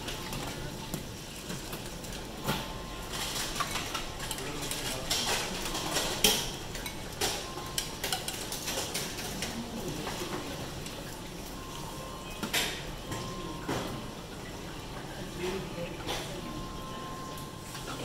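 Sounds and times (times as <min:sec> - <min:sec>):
tableware and utensils clinking: 0:00.0 - 0:14.1.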